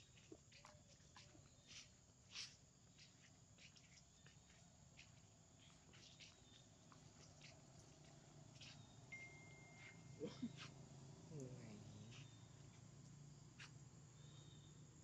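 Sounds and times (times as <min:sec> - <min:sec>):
footsteps on dry leaves: 0:00.0 - 0:08.9.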